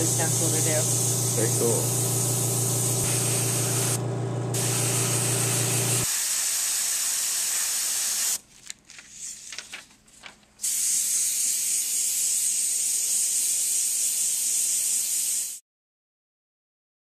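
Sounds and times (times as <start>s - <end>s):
air compressor motor humming: 0.0s - 6.1s
airbrush hissing: 0.0s - 8.4s, 10.6s - 15.6s.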